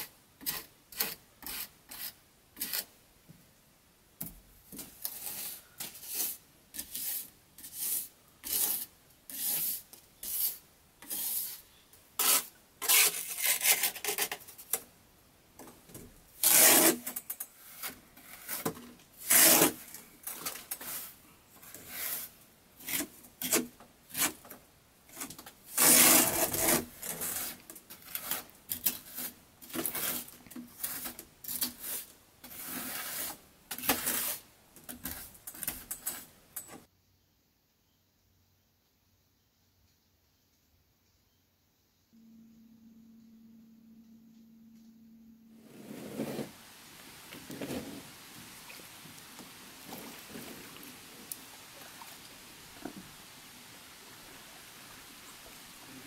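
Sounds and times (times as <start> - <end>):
trowel scraping wet mortar: 0.4 - 2.9, 4.9 - 11.6, 12.2 - 14.4, 16.4 - 19.8, 25.8 - 36.3.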